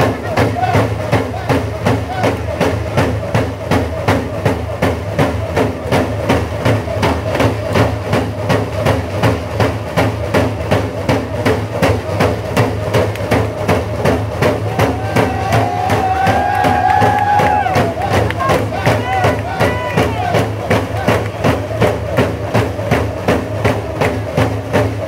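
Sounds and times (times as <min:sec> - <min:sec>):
voices singing: 0:00.0 - 0:02.7
frame drums beating: 0:00.0 - 0:25.0.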